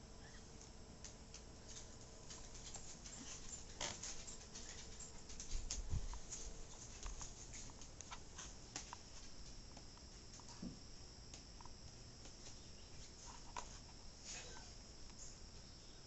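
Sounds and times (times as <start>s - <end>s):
dog's nails clicking on wooden floor: 0.6s - 10.6s.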